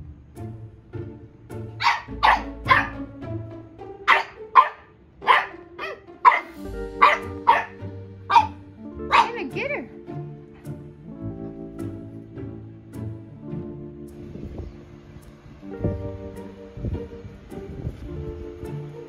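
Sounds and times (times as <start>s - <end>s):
puppy high-pitched barks: 1.8s - 3.0s, 4.1s - 9.6s.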